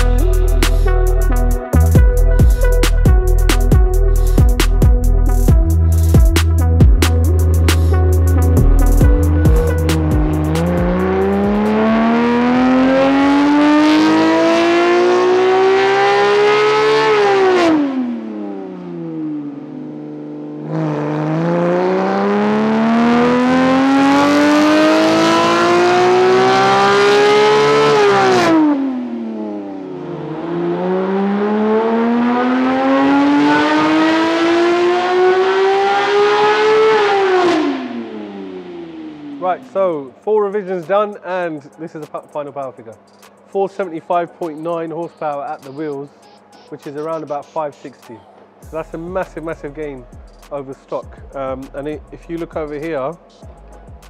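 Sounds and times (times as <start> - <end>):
engine running low: 0.0 - 40.3
car engine revving on a dyno: 7.5 - 39.7.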